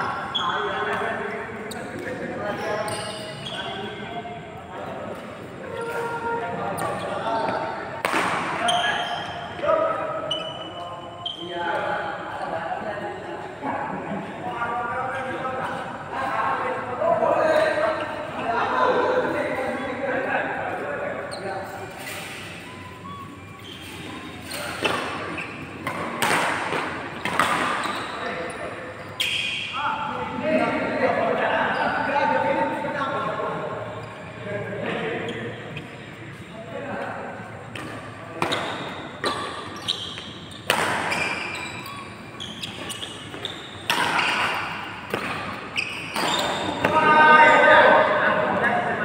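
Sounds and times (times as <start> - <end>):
shoe squeaks: 0.0 - 13.4, 20.7 - 30.7, 31.3 - 36.6, 37.6 - 48.0
racket hitting shuttlecock: 8.0 - 8.6, 24.7 - 27.9, 37.7 - 41.5, 42.7 - 47.0.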